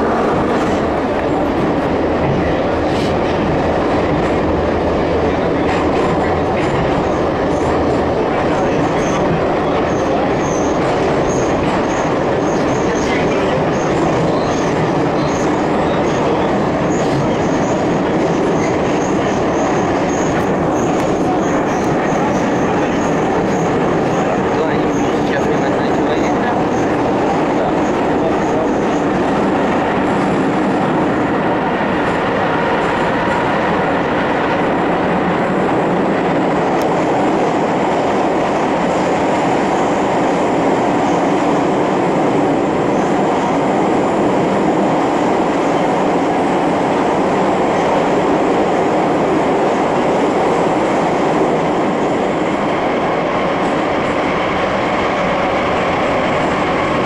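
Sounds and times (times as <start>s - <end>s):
metro train wheels rumbling on rails: 0.0s - 57.0s.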